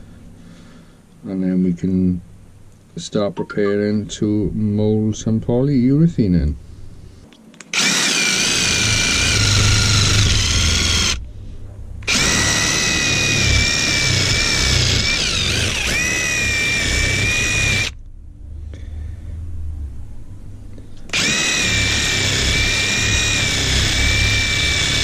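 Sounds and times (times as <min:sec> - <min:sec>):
power drill whining: 0:07.7 - 0:11.2, 0:12.0 - 0:18.0, 0:21.1 - 0:25.0.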